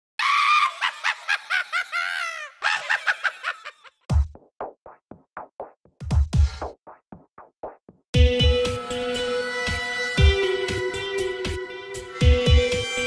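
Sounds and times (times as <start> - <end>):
witch's cackling laugh: 0.2 - 4.0
electronic music with bass drum: 4.1 - 13.0.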